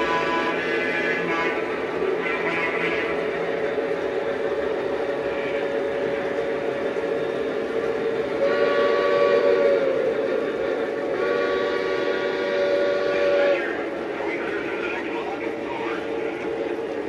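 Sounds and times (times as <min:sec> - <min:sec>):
model trains running on track: 0:00.0 - 0:17.0
model locomotive horn chord: 0:08.4 - 0:10.0, 0:11.1 - 0:13.5.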